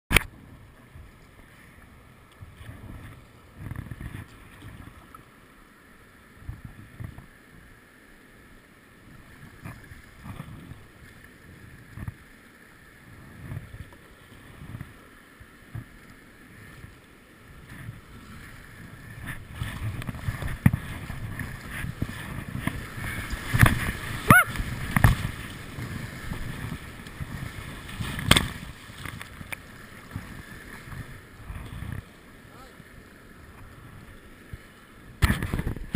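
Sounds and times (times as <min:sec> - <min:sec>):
paddle strokes in water: 0:00.1 - 0:35.9
water lapping at hull: 0:00.1 - 0:35.9
waves splashing over kayak: 0:00.1 - 0:35.9.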